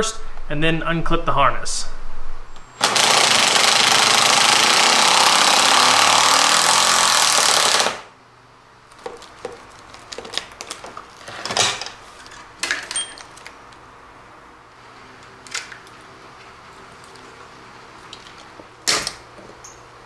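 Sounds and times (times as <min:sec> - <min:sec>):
power ratchet running: 0:02.8 - 0:08.1.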